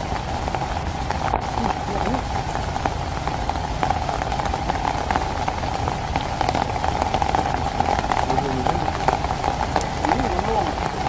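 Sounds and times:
rain patter: 0.0 - 11.0.

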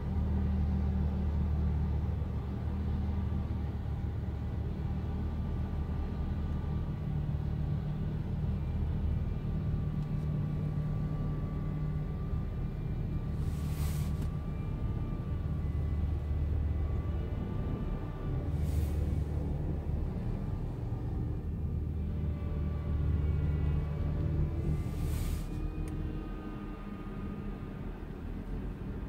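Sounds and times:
faint steady whine: 0.0 - 29.0
brief hiss: 13.4 - 14.3, 18.5 - 19.3, 24.8 - 25.6.

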